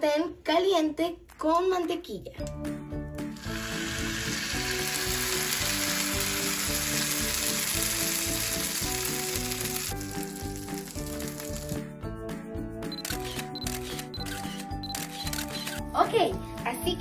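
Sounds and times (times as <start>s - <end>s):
light background music: 0.0s - 17.0s
batter sizzling in a frying pan: 3.4s - 11.8s.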